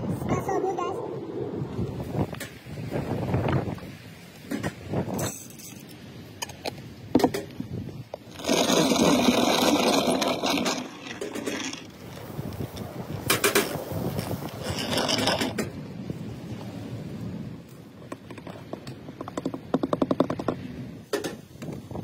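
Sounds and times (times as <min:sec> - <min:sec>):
hand grinder crunching beans: 0:08.3 - 0:11.9.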